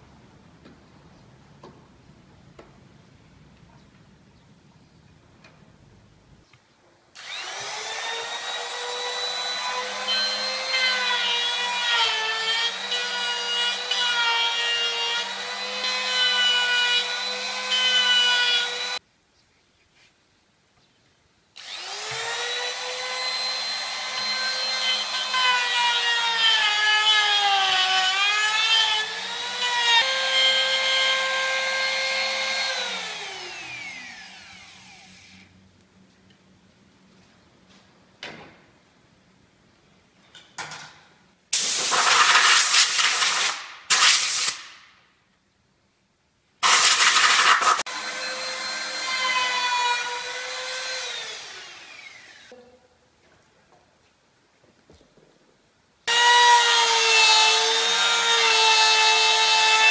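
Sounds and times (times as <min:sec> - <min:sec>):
electric router whining: 0:07.2 - 0:19.0, 0:21.6 - 0:26.4, 0:29.0 - 0:35.4, 0:47.9 - 0:52.5
router cutting wood: 0:07.2 - 0:19.0, 0:21.6 - 0:35.4, 0:46.6 - 0:52.5, 0:56.1 - 0:59.9.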